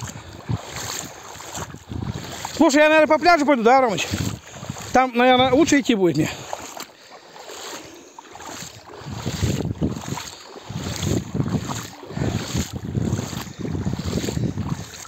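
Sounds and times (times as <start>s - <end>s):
wind buffeting microphone: 0.0s - 2.7s, 3.9s - 5.7s, 8.4s - 15.0s.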